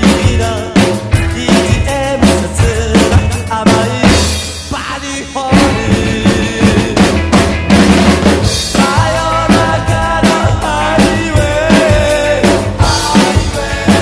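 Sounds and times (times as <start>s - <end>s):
person singing: 0.0s - 7.4s, 8.6s - 14.0s
drum kit playing: 0.0s - 14.0s
rock song recording: 0.0s - 14.0s.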